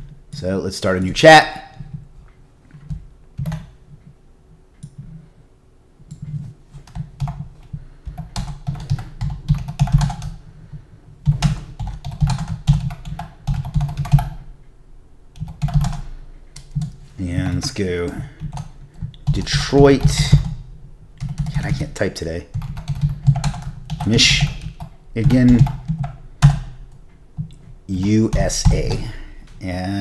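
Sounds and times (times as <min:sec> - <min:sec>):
typing on computer keyboard: 0:02.8 - 0:03.8, 0:06.1 - 0:10.4, 0:11.2 - 0:14.4, 0:15.4 - 0:17.0, 0:21.2 - 0:21.8, 0:22.5 - 0:26.8.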